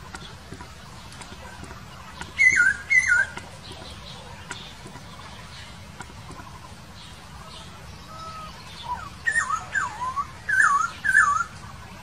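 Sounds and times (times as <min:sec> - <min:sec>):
bird singing whistled phrases: 0:02.4 - 0:03.4, 0:07.6 - 0:11.6.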